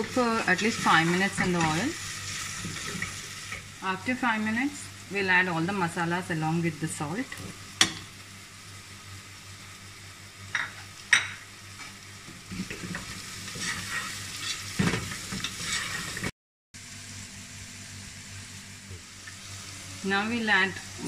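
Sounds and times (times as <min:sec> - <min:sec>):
vegetables sizzling in oil: 0:00.0 - 0:21.0
spatula scraping a pot: 0:12.6 - 0:14.8, 0:15.4 - 0:16.3.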